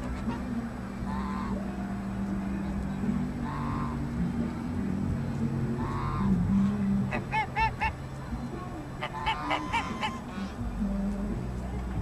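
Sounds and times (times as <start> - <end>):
low steady rumble: 0.0 - 12.0
geese honking: 0.2 - 2.0, 2.6 - 4.5, 5.7 - 8.1, 9.0 - 10.9.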